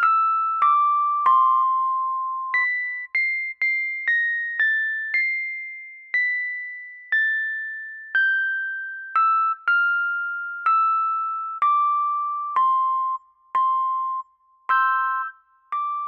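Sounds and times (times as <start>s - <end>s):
slow melody of struck notes: 6.1s - 16.0s.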